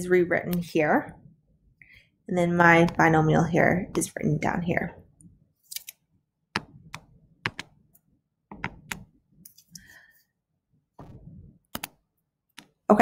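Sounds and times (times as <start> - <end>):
input device clicks and taps: 6.5 - 7.7, 8.5 - 9.1, 11.7 - 12.8.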